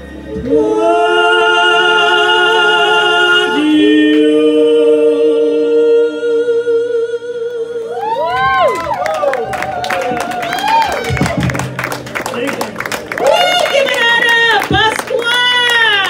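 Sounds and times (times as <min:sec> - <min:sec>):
amplified voices singing duet: 0:00.0 - 0:08.8.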